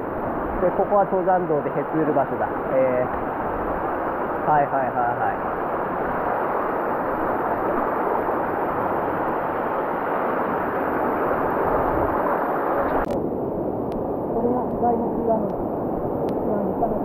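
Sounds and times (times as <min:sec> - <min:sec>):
mountain stream rushing: 0:00.0 - 0:17.0.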